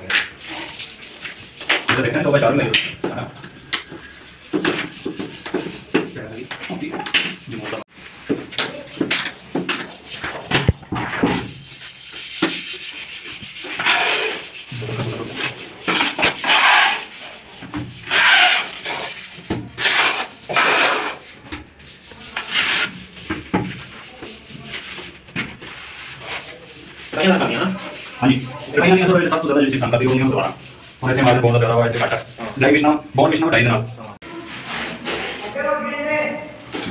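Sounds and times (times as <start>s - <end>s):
cloth rubbing on ceramic tile: 11.5s - 35.5s.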